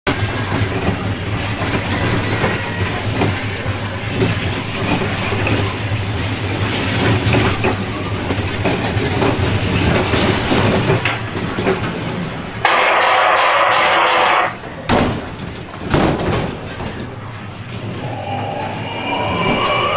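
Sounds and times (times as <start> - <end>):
sudden loud noise: 12.6 - 14.6, 17.4 - 19.9.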